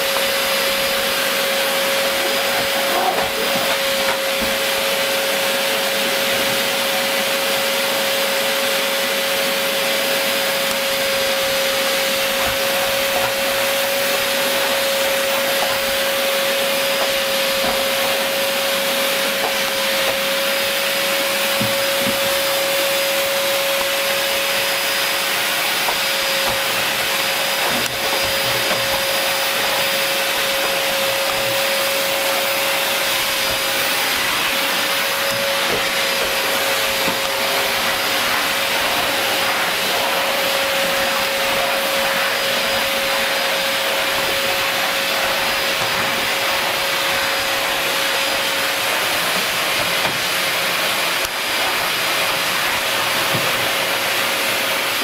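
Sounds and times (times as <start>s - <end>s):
vacuum cleaner running: 0.0s - 55.0s.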